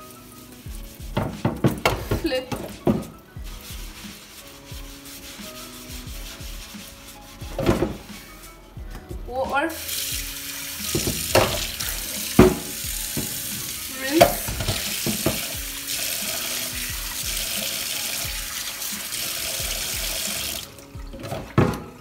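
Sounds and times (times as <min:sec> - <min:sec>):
cutting board knocks: 0:01.2 - 0:03.1, 0:07.5 - 0:08.0, 0:10.9 - 0:11.7, 0:12.4 - 0:13.4, 0:14.2 - 0:15.4
tap running into steel sink: 0:10.8 - 0:15.6.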